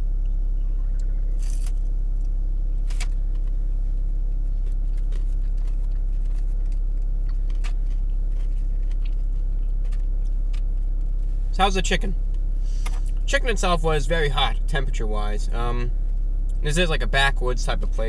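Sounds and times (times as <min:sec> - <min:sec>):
low rumble inside car: 0:00.0 - 0:18.0
chewing crisp fried chicken: 0:00.2 - 0:11.3.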